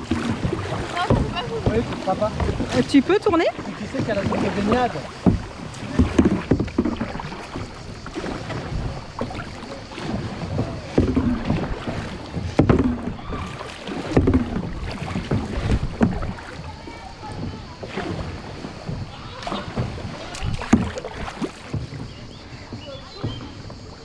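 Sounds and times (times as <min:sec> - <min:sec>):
wind buffeting microphone: 0:00.0 - 0:23.9
kayak paddle strokes in water: 0:00.0 - 0:24.0.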